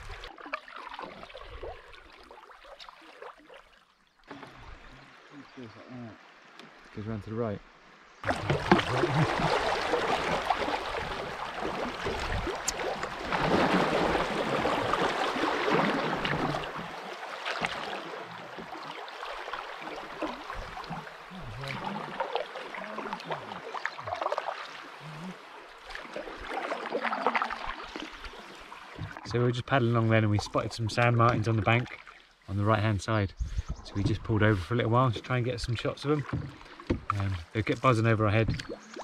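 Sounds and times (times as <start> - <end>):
river water rushing and splashing: 7.7 - 29.4
paddle strokes in water: 8.2 - 30.1, 36.0 - 39.0.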